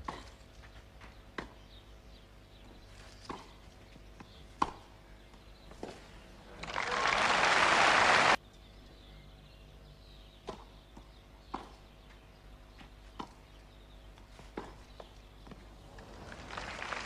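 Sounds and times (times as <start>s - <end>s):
crowd applause: 6.6s - 8.4s, 16.0s - 17.0s.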